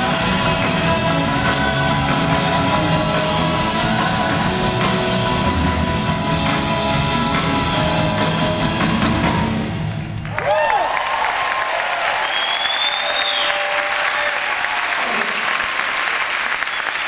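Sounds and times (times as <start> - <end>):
live band playing loudly: 0.0 - 10.3.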